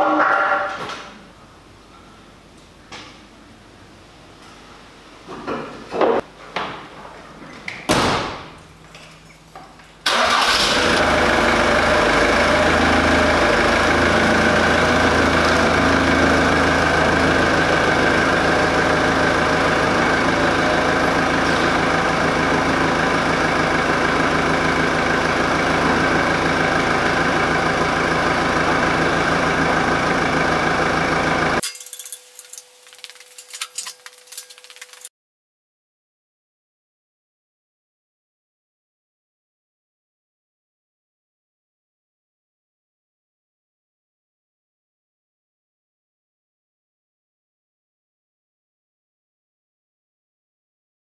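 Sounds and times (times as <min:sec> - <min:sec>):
van engine starting and running: 0:10.0 - 0:31.6.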